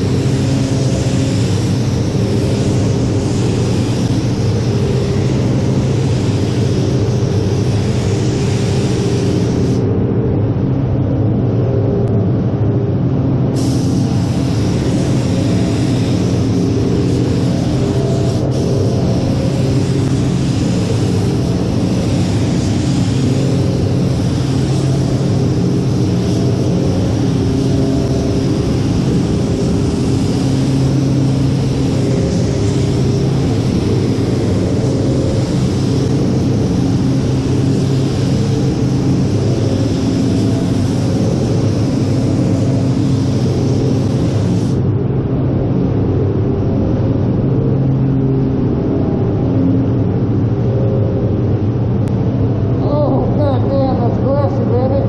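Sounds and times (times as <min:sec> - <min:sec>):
paint spray gun hissing: 0:00.0 - 0:09.8, 0:13.6 - 0:44.8
fans humming: 0:00.0 - 0:55.0.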